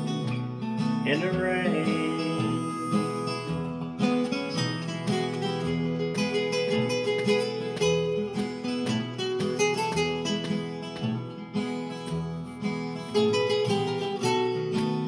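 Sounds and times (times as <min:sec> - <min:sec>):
acoustic guitar instrumental: 0:00.0 - 0:15.0.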